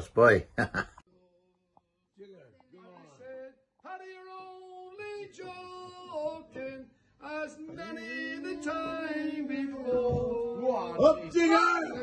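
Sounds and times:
person singing unaccompanied: 0:03.0 - 0:12.0.

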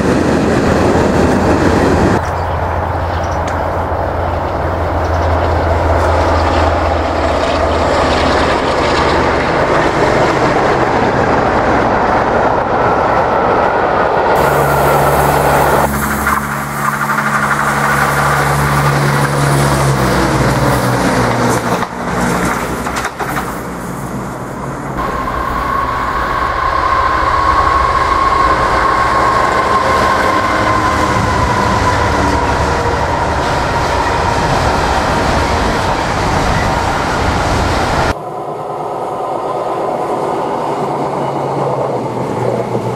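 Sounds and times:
diesel locomotive engine hum: 0:00.0 - 0:42.9
diesel train engine passing: 0:00.0 - 0:42.9
rumble of train wheels: 0:00.0 - 0:42.9
train wheel squeal: 0:14.3 - 0:20.9, 0:25.0 - 0:37.6.

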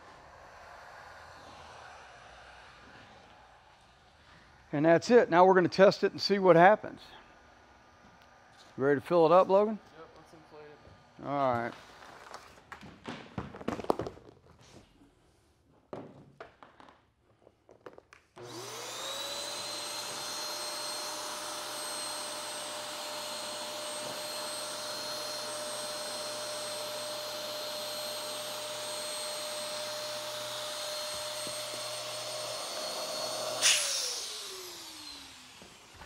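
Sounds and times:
electric inflator pump whine: 0:00.1 - 0:03.6, 0:18.4 - 0:36.0
loud air burst: 0:33.4 - 0:34.7.

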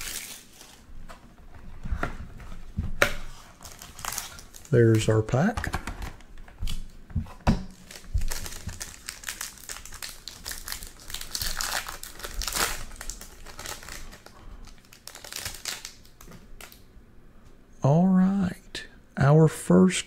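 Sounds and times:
foil wrapper crinkling: 0:00.0 - 0:00.9, 0:03.5 - 0:05.3, 0:07.7 - 0:16.8.

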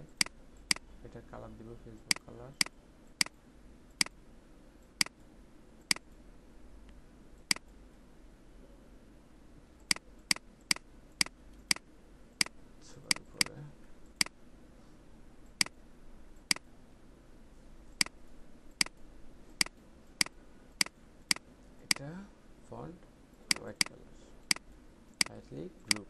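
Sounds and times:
computer mouse clicking: 0:00.0 - 0:00.8, 0:12.4 - 0:14.4, 0:17.9 - 0:18.2, 0:19.6 - 0:22.0, 0:23.5 - 0:26.0.

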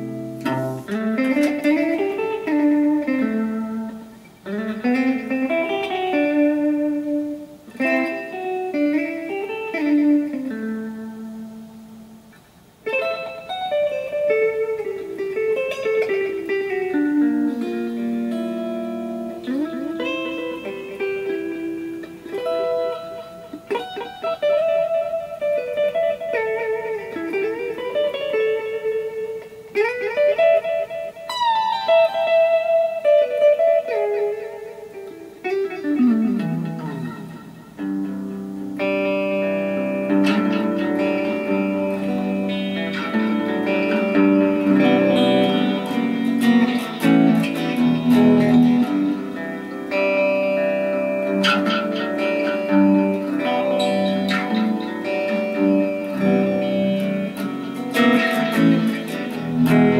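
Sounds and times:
electric guitar with echo: 0:00.0 - 0:59.9.

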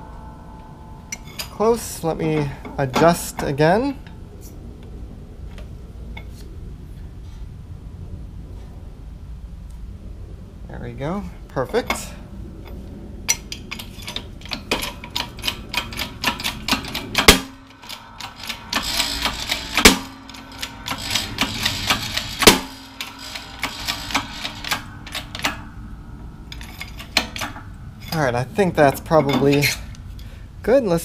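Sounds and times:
rapid metallic clicking: 0:13.3 - 0:30.0
loud metal clunks: 0:13.7 - 0:28.2.

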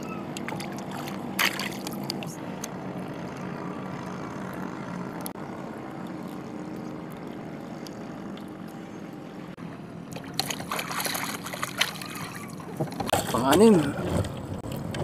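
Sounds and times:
water splashing: 0:00.0 - 0:02.6, 0:10.0 - 0:14.8
steady low hum: 0:00.0 - 0:14.9.

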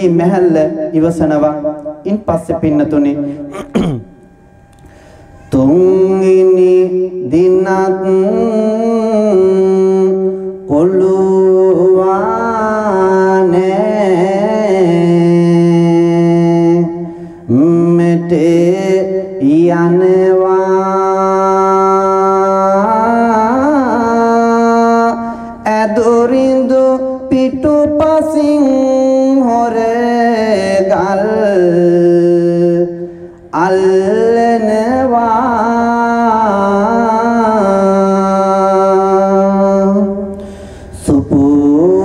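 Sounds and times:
man chanting a verse: 0:00.0 - 0:03.7, 0:05.5 - 0:33.0, 0:40.9 - 0:42.0.

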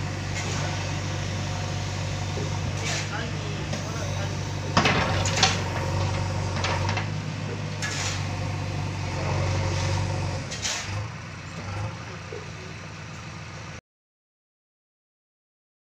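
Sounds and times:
bucket working in gravel: 0:00.0 - 0:11.1
diesel engine droning: 0:00.0 - 0:13.8.

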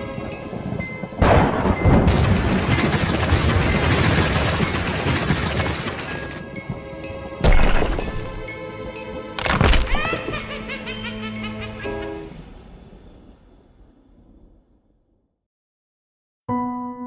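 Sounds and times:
thunder crack and rumble: 0:00.0 - 0:08.4, 0:12.3 - 0:15.4
music: 0:00.0 - 0:12.5, 0:16.5 - 0:17.0.

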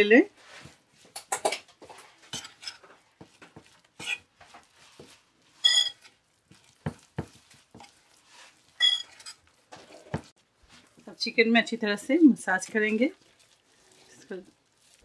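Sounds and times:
spoon stirring thick marinade: 0:00.4 - 0:15.0
spoon clinking against bowl: 0:05.6 - 0:06.1, 0:08.8 - 0:09.4.

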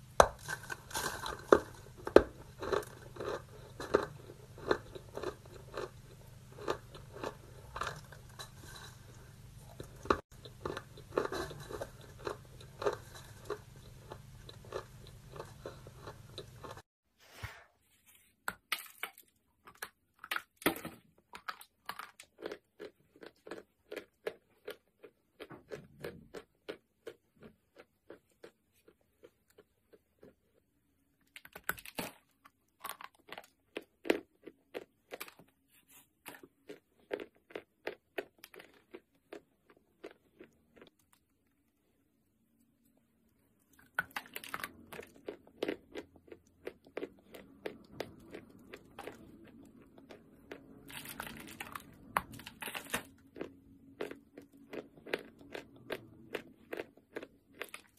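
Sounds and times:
crunching and chewing: 0:00.0 - 0:16.9, 0:18.6 - 0:42.1, 0:42.8 - 0:57.9.

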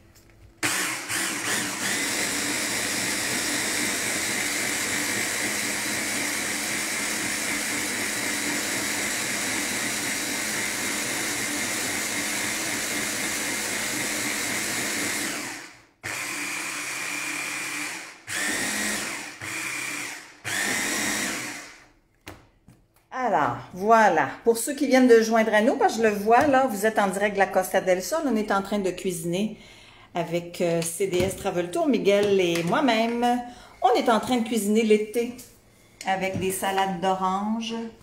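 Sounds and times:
electric blender running: 0:00.6 - 0:22.0.

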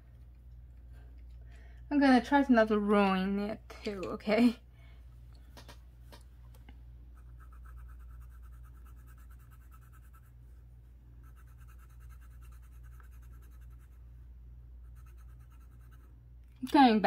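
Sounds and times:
faint low hum: 0:00.0 - 0:17.0
pencil scratching on paper: 0:07.2 - 0:10.3, 0:11.2 - 0:14.0, 0:14.8 - 0:16.1.

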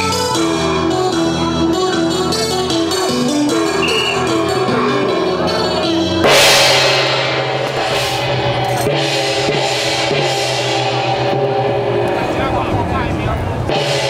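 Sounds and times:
melody: 0:00.0 - 0:07.7
gong and cymbal strikes with drum: 0:03.1 - 0:14.0
low ringing of large gongs: 0:03.6 - 0:14.0
loud crash: 0:03.9 - 0:12.6.

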